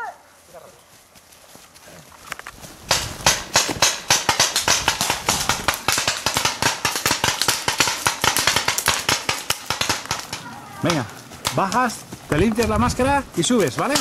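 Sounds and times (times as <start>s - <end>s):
paintball markers firing: 2.9s - 12.8s, 13.5s - 14.0s.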